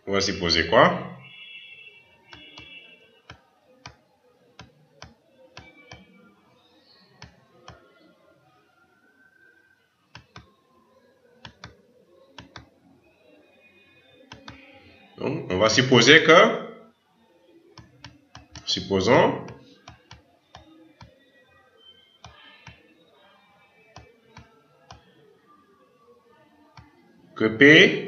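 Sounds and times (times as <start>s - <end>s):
computer mouse clicking: 10.1s - 10.5s, 11.4s - 11.8s, 12.4s - 12.7s, 14.3s - 14.6s, 17.8s - 18.7s, 19.5s - 21.1s.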